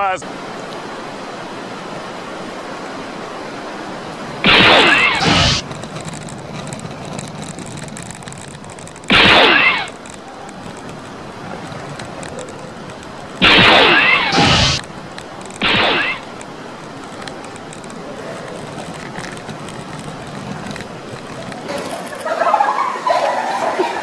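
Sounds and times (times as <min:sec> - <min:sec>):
steady hiss: 0:00.0 - 0:06.8, 0:07.4 - 0:18.8.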